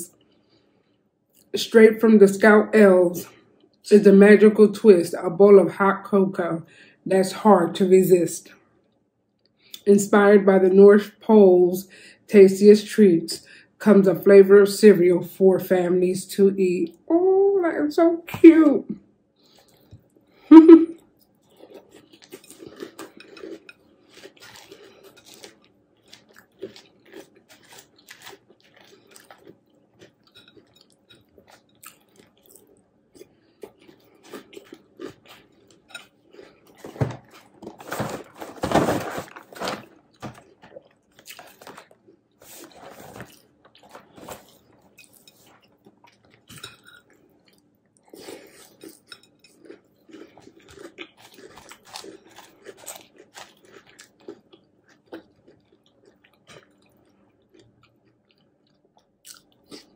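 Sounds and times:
chewing and crunching cereal: 19.4 - 20.4, 21.0 - 59.9
cardboard box rustling: 36.9 - 40.4.

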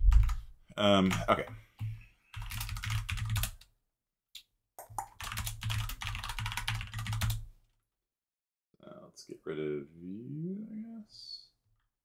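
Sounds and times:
computer keyboard typing: 0.1 - 0.4, 1.0 - 3.7, 4.8 - 7.5.

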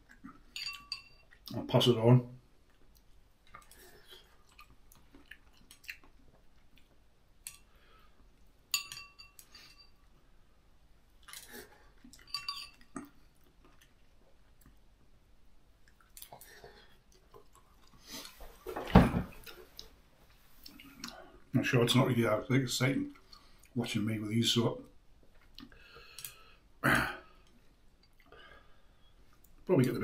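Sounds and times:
chopsticks clinking against bowl: 0.5 - 1.3, 8.8 - 9.9, 12.2 - 12.9
chewing: 2.6 - 7.7, 11.2 - 14.9, 15.8 - 18.4, 25.2 - 26.4.

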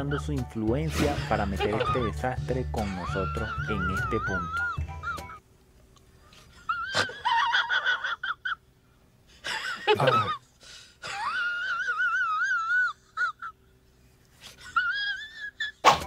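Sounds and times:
person wheezing squeakily: 6.4 - 7.2.

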